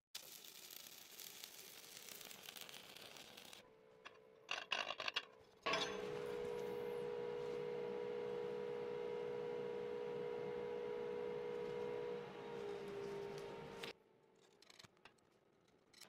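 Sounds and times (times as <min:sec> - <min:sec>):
welding arc crackling and hissing: 0:00.0 - 0:03.6
steady hum-like tone: 0:05.7 - 0:13.9.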